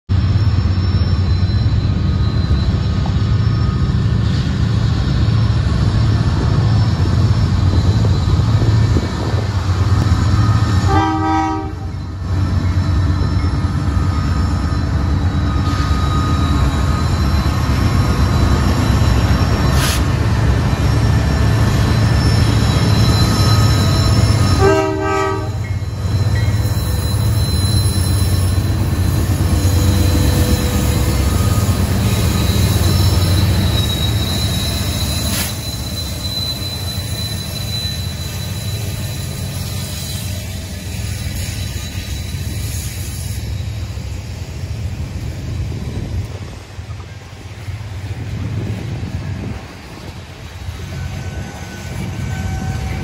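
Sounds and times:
diesel locomotive rumble: 0.1s - 53.0s
train horn blasts: 10.6s - 12.0s, 24.1s - 25.8s, 50.9s - 53.0s.

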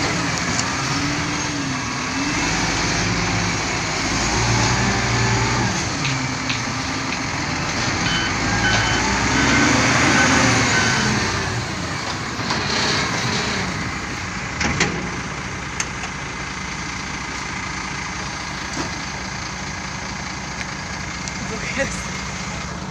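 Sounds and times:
wheel loader diesel engine: 0.0s - 22.9s
short warning beeps: 8.0s - 11.1s.

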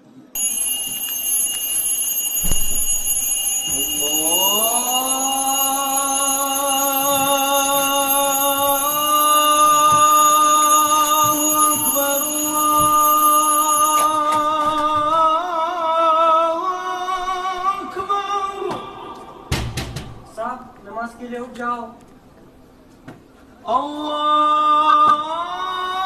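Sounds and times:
alarm clock tone: 0.4s - 14.9s.

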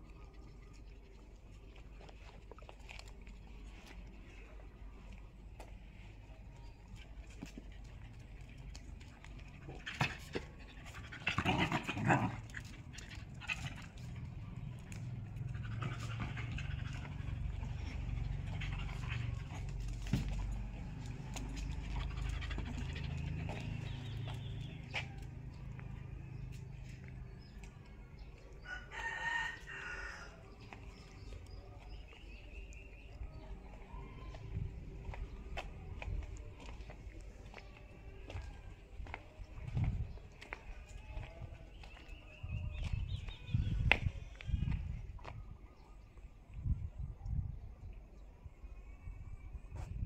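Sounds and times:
dog snarling and growling: 11.1s - 12.6s
rooster crowing: 28.6s - 30.4s.

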